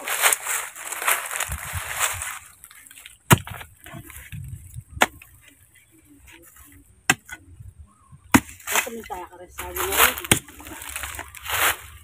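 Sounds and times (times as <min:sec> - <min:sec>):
hoe striking soil and roots: 0:02.6 - 0:05.6, 0:08.3 - 0:11.9.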